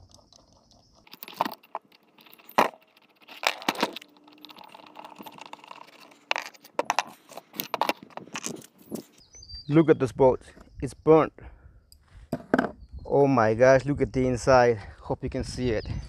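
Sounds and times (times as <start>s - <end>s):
metal parts clicking and clacking: 0.0s - 9.2s.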